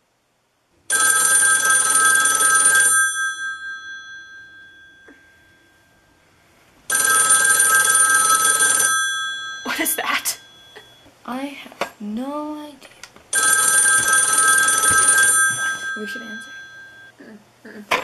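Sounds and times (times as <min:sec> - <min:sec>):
telephone bell ringing: 0:00.9 - 0:06.3, 0:06.9 - 0:11.1, 0:13.3 - 0:17.1.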